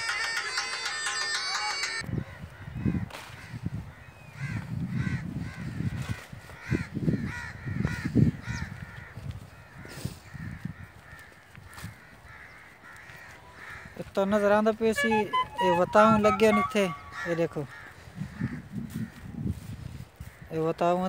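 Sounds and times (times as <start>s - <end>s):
crows cawing: 2.6s - 14.1s, 17.0s - 19.2s.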